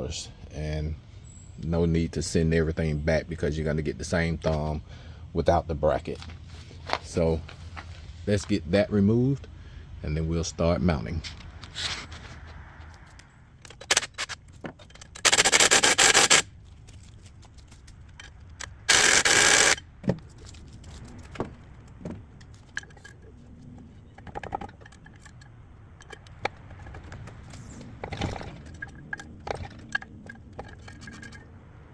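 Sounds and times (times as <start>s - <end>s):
light metal clicks and knocks: 20.0s - 31.5s.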